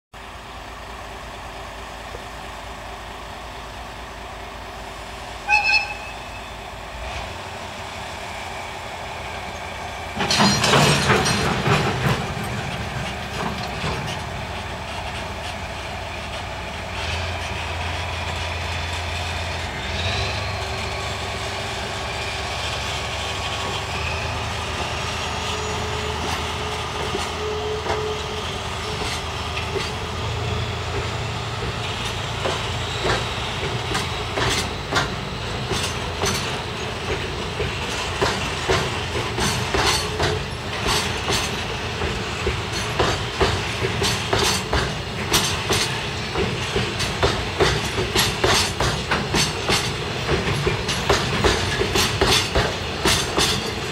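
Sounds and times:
diesel locomotive engine running: 0:00.2 - 0:53.9
short whistle toot: 0:05.5 - 0:06.6
freight wagons clanking: 0:09.8 - 0:19.6, 0:23.4 - 0:53.9.

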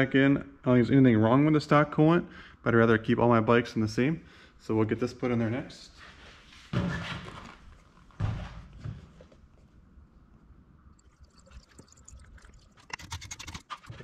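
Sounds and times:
liquid splashing and glugging: 0:10.9 - 0:14.0.

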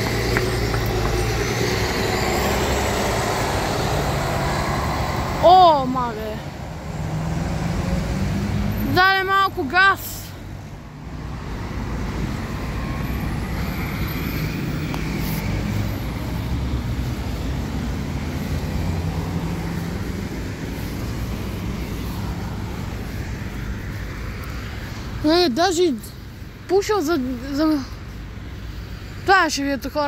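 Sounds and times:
bus diesel engine droning: 0:00.0 - 0:06.8
city road traffic: 0:00.0 - 0:30.0.

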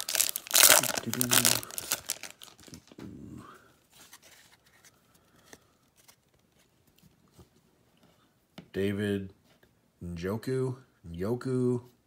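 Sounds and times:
trading cards rustling: 0:00.0 - 0:03.0.

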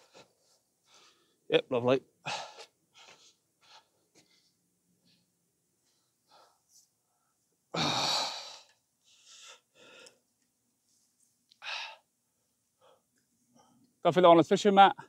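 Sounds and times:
quiet breaths: 0:00.0 - 0:01.6, 0:02.2 - 0:14.1
person sighing loudly: 0:07.7 - 0:08.7, 0:11.6 - 0:12.0.

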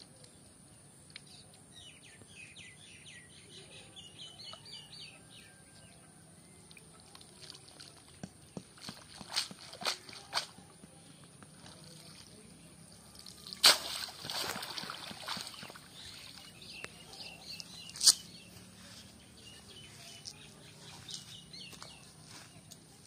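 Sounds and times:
water sloshing and dripping: 0:06.6 - 0:12.5, 0:13.1 - 0:16.6
water splashing: 0:06.8 - 0:10.8, 0:11.5 - 0:17.4.

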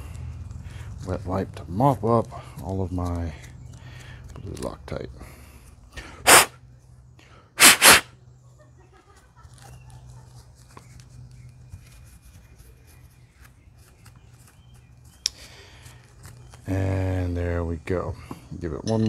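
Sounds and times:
short hissing bursts: 0:06.2 - 0:06.5, 0:07.6 - 0:08.1
wipe rubbing on metal: 0:06.3 - 0:06.5, 0:07.6 - 0:08.1.

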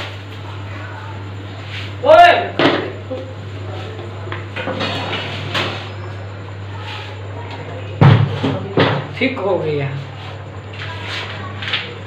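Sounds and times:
steady low hum: 0:00.0 - 0:12.0
loud clunks of cookware: 0:02.6 - 0:03.0, 0:08.0 - 0:09.1.

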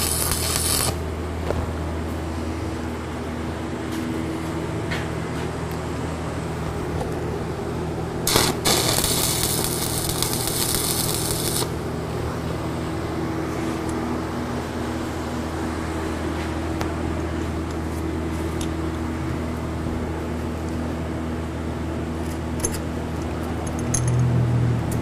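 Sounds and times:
arc welding crackling hiss: 0:00.0 - 0:01.0, 0:08.2 - 0:11.8
electrical hum: 0:00.0 - 0:25.0.

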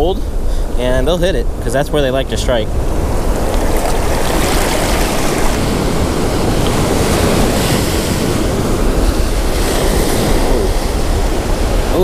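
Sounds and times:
surf washing in shallow water: 0:00.0 - 0:12.0
wind rumbling on microphone: 0:00.0 - 0:12.0.

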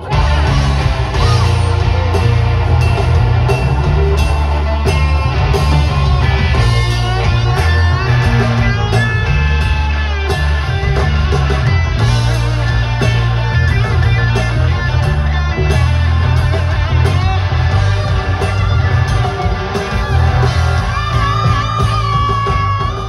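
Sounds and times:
drum kit: 0:00.0 - 0:23.0
electric guitar bending notes: 0:00.0 - 0:23.0
heavy bass line: 0:00.0 - 0:23.0.

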